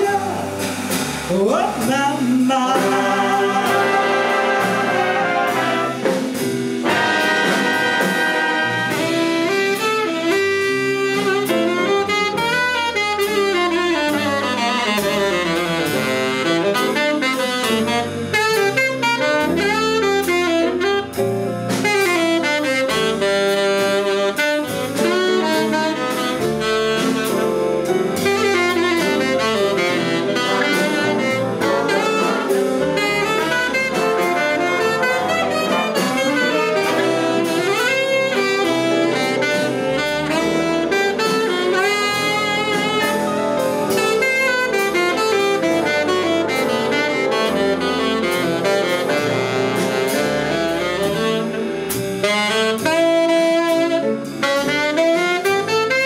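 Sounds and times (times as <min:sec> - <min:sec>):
double bass: 0:00.0 - 0:56.0
drum kit: 0:00.0 - 0:56.0
brass section: 0:02.6 - 0:56.0
saxophone solo: 0:02.8 - 0:56.0.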